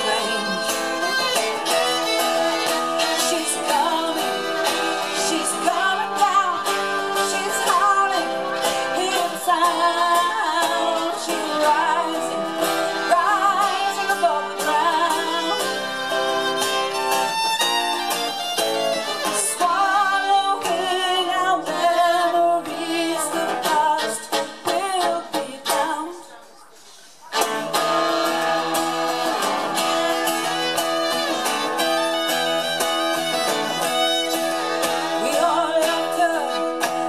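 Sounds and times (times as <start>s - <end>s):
fiddle melody: 0.0s - 20.6s, 27.4s - 37.0s
acoustic guitar: 0.0s - 37.0s.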